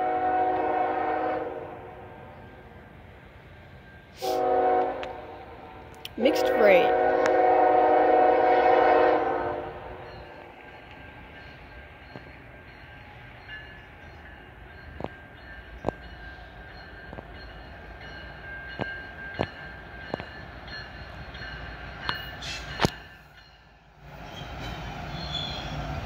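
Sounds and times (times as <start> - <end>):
train air horn blast: 0.0 - 2.0, 4.2 - 10.1
train rumbling: 0.0 - 26.0.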